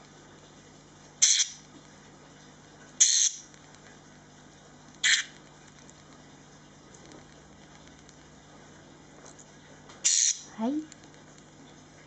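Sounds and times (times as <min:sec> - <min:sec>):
parakeet raspy begging calls: 0:01.2 - 0:01.6, 0:03.0 - 0:03.5, 0:05.0 - 0:05.3, 0:10.0 - 0:10.6.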